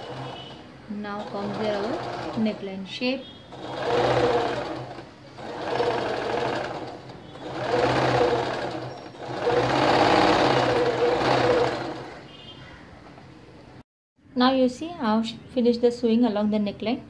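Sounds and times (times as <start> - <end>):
sewing machine stitching: 0.0 - 2.8, 3.5 - 12.2.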